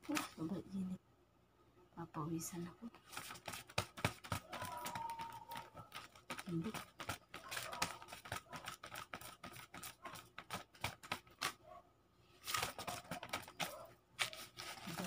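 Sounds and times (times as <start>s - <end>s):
banknotes rustling and snapping: 0.0s - 0.5s, 3.0s - 11.6s, 12.4s - 15.0s.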